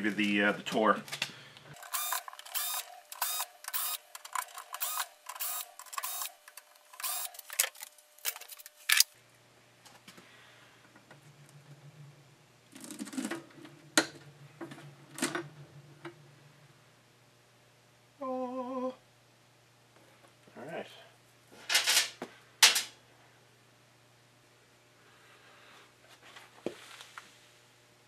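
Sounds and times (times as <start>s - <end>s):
cordless drill whirring: 1.8s - 4.0s, 4.8s - 6.3s, 7.0s - 7.4s.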